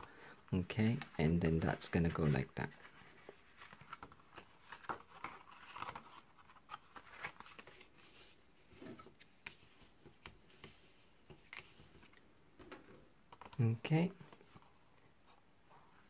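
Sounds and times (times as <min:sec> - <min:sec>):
soft paper rustles: 0:00.0 - 0:16.0.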